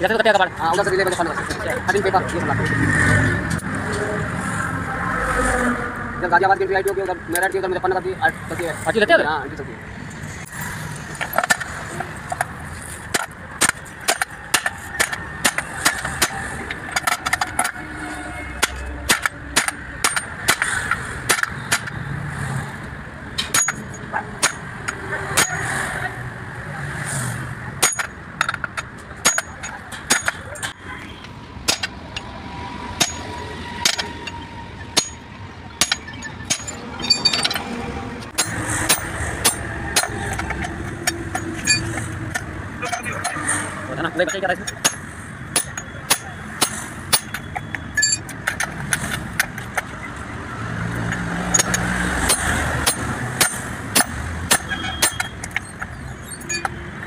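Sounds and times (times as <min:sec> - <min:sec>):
hammer striking metal: 0:13.1 - 0:17.8, 0:18.6 - 0:22.0, 0:23.4 - 0:24.7, 0:25.3 - 0:25.7, 0:27.8 - 0:30.8, 0:31.6 - 0:32.3, 0:33.0 - 0:43.5, 0:44.2 - 0:49.7, 0:51.1 - 0:56.8.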